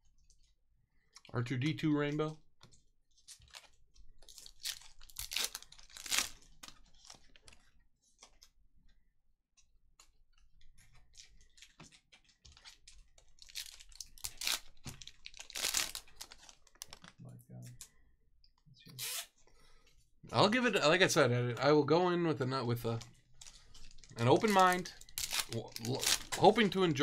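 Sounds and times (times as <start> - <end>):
card wrappers tearing and crinkling: 3.2 - 7.6, 11.4 - 17.1, 22.9 - 27.0.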